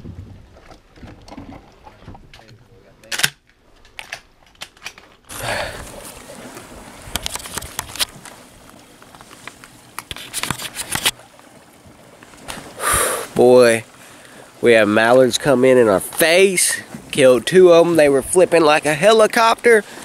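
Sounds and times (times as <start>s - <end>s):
camera handling noise: 10.0s - 11.2s.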